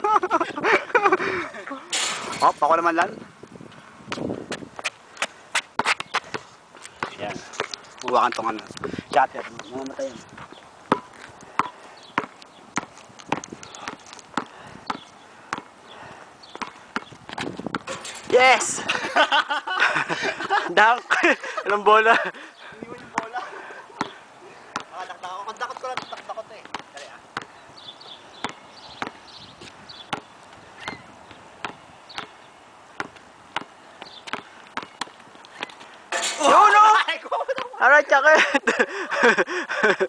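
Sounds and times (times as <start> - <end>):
basketball bouncing on asphalt: 3.0 - 18.3, 22.9 - 23.4, 24.0 - 35.8
running steps: 3.4 - 32.4.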